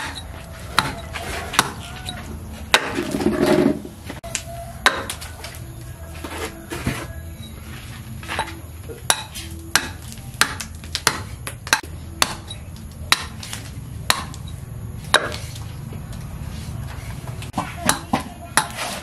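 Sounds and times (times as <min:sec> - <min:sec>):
hatchet chopping wood: 0:00.0 - 0:03.3, 0:04.2 - 0:05.2, 0:08.4 - 0:15.6, 0:17.5 - 0:19.0.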